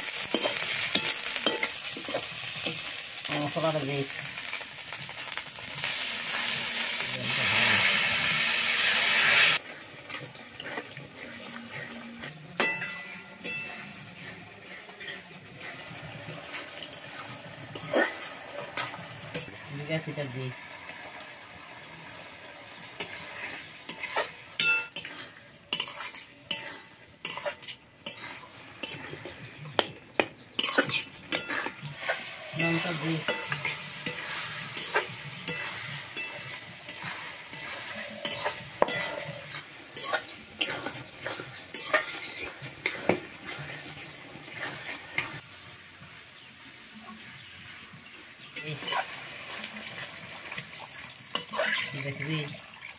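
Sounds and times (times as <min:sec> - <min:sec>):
spatula scraping a wok: 0:00.0 - 0:21.3, 0:22.1 - 0:45.5, 0:47.4 - 0:52.3
food sizzling in a wok: 0:00.0 - 0:52.9.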